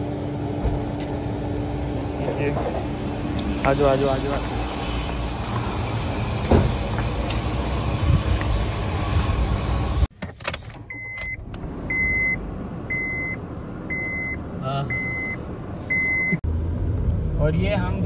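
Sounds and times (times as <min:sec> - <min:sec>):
car warning chime beeping: 0:10.9 - 0:16.4.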